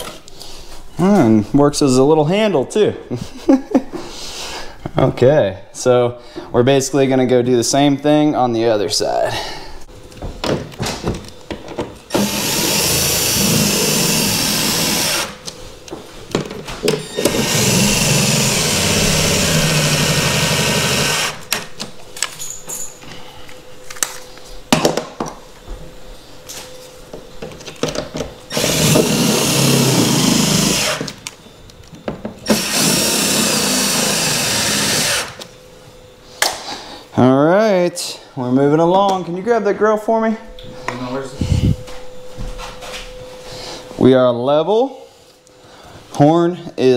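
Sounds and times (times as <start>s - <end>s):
knocks and handling: 10.1s - 12.0s, 15.4s - 17.4s
cordless drill driving screws: 12.1s - 15.4s, 17.1s - 21.5s, 28.5s - 31.2s, 32.4s - 35.4s.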